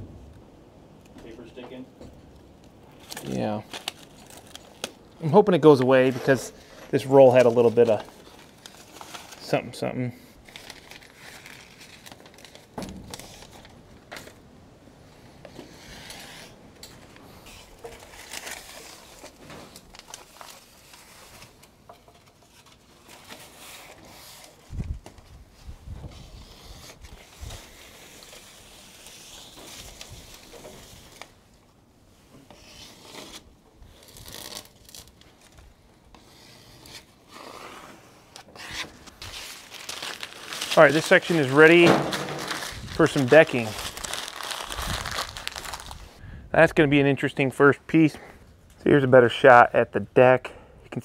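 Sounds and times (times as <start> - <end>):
tape unrolling and peeling: 2.9 - 9.6, 10.4 - 14.4, 15.4 - 31.4, 32.5 - 46.2.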